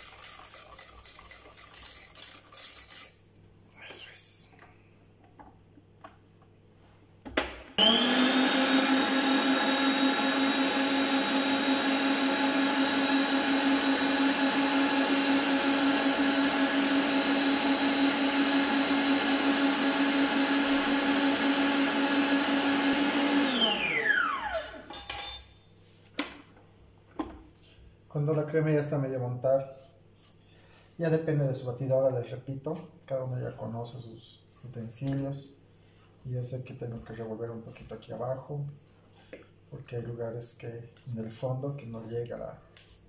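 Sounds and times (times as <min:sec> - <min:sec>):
stand mixer motor whining: 0:00.0 - 0:02.4, 0:07.8 - 0:24.9
whisk whipping cream in steel bowl: 0:00.0 - 0:03.2, 0:08.3 - 0:23.9.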